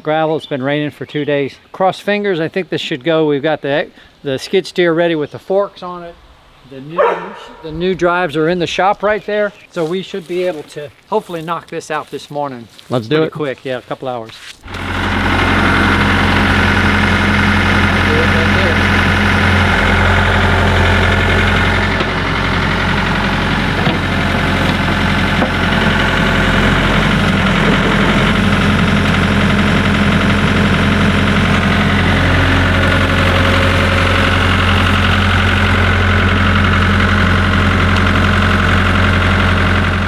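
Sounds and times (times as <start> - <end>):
diesel engine running: 7.0 - 9.5, 14.6 - 40.0.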